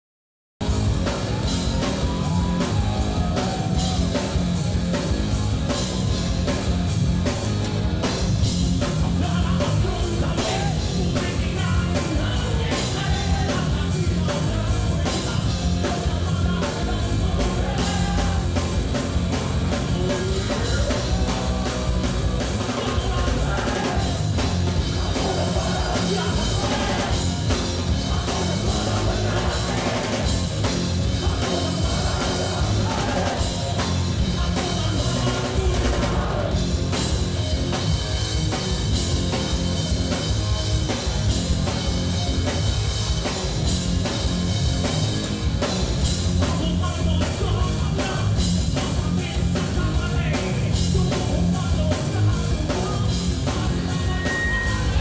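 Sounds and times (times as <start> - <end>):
live rock band playing: 0.6 - 55.0
man singing: 8.8 - 18.8, 19.6 - 21.8, 22.6 - 36.6, 46.4 - 55.0.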